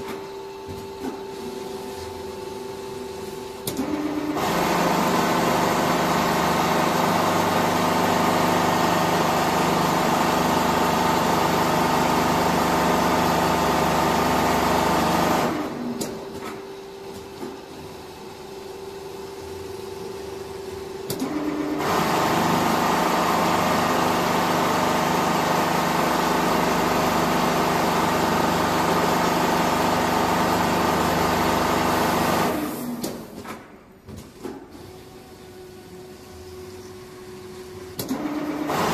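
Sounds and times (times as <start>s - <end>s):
sewing machine whirring: 3.8s - 16.2s, 21.2s - 33.3s, 37.9s - 38.9s.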